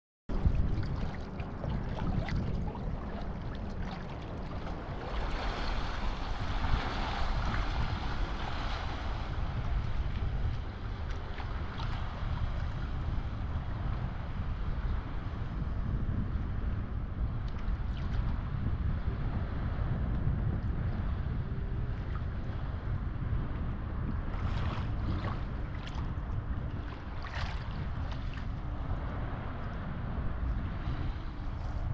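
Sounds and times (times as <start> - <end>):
sea water sloshing: 0.3 - 13.9, 24.1 - 29.8, 30.4 - 31.9
waves lapping and splashing: 0.3 - 16.0, 17.4 - 19.8, 20.5 - 31.9
wind buffeting microphone: 0.3 - 31.9.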